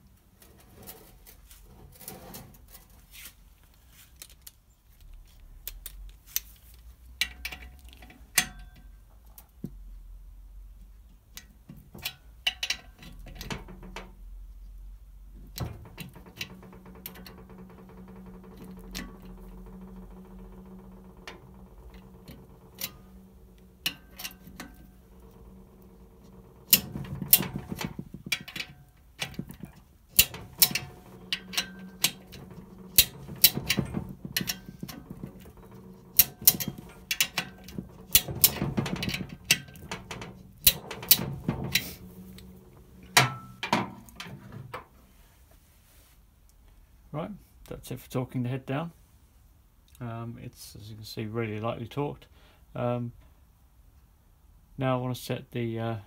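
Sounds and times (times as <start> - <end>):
steady low hum: 14.8 - 45.2
torque wrench clicks and knocks: 15.4 - 44.9
ratcheting clicks: 15.5 - 43.2.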